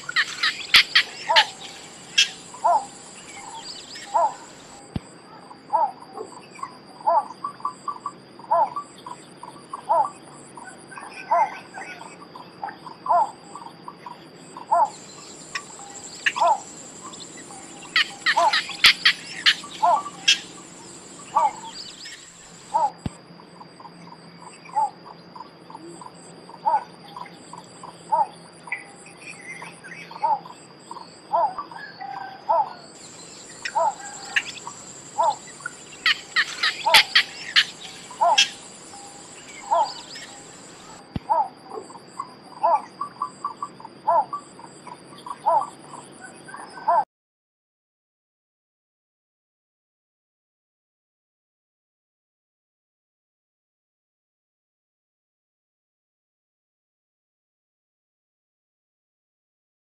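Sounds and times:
rapid sharp clicking calls: 0:00.0 - 0:05.1, 0:14.9 - 0:16.7, 0:17.8 - 0:23.2, 0:33.4 - 0:38.7
high insect drone: 0:00.0 - 0:31.8, 0:32.4 - 0:46.2.

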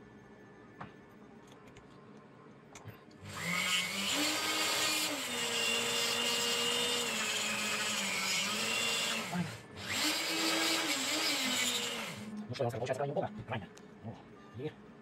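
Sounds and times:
rotary tool cutting: 0:03.3 - 0:12.3.

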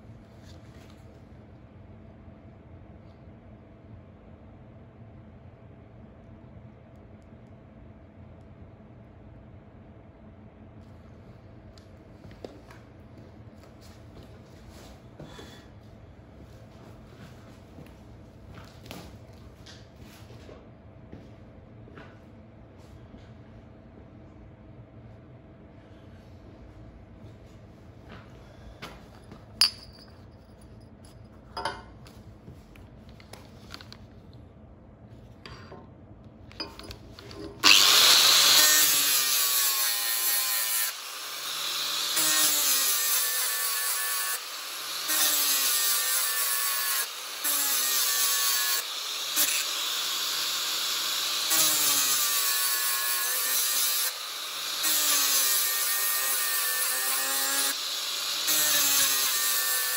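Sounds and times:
angle grinder grinding metal: 0:36.7 - 0:59.9.

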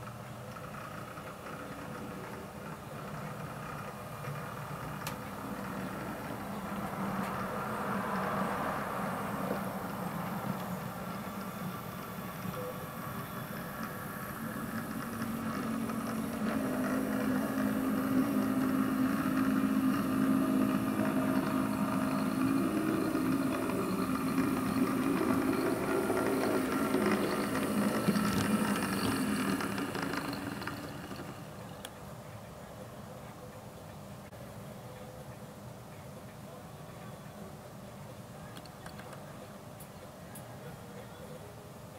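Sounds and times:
model train diesel engine sound: 0:00.0 - 0:32.3
wheel and motor noise: 0:00.0 - 0:34.3.

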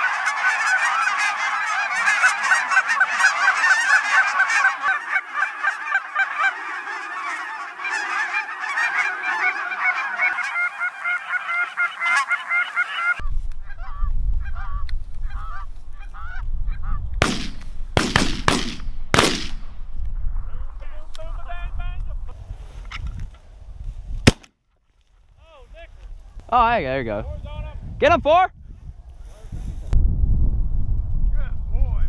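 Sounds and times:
geese honking: 0:00.0 - 0:17.0
wind rumble on microphone: 0:13.2 - 0:24.3, 0:25.2 - 0:32.0
shotgun shots: 0:17.2 - 0:19.7, 0:24.2 - 0:24.5.

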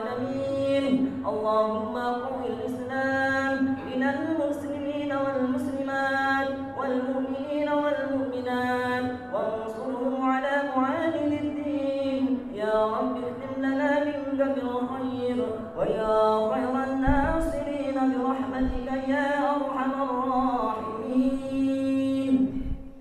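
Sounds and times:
man chanting over loudspeakers: 0:00.0 - 0:22.8.

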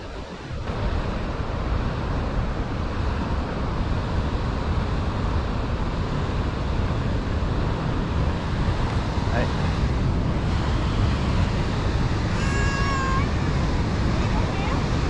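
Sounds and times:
white water rushing: 0:00.0 - 0:15.0.

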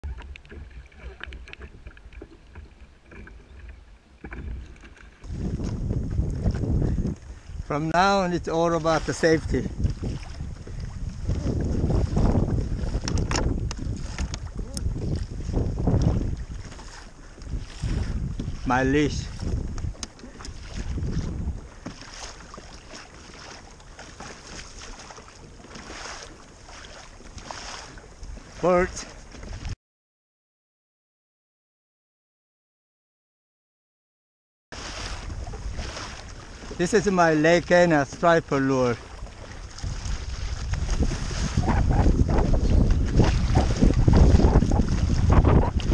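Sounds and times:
water slapping against kayak hull: 0:00.0 - 0:29.8, 0:34.8 - 0:45.9
wind rumble: 0:03.5 - 0:07.8, 0:08.4 - 0:21.8, 0:39.0 - 0:45.9.

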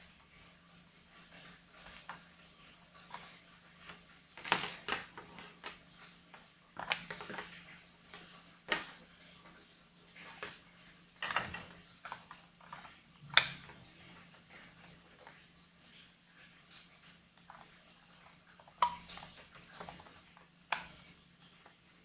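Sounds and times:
faint steady hum: 0:00.0 - 0:22.0
plastic clicks and clatters: 0:03.0 - 0:09.6, 0:11.2 - 0:13.9.

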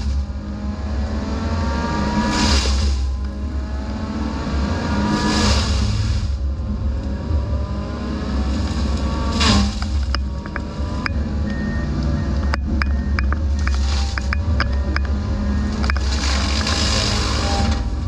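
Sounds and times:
mulcher low drone and whine: 0:00.0 - 0:18.0
disc grinding into brush: 0:12.6 - 0:18.0.

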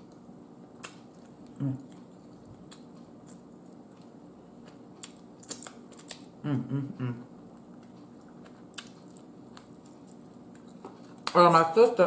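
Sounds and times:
person humming mm: 0:01.6 - 0:01.8, 0:06.4 - 0:07.3.

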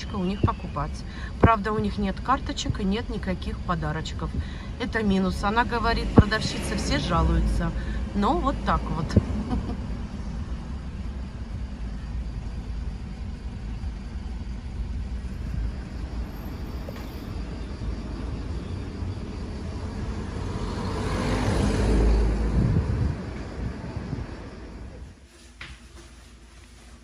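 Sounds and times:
car engine and road noise: 0:00.0 - 0:25.2.

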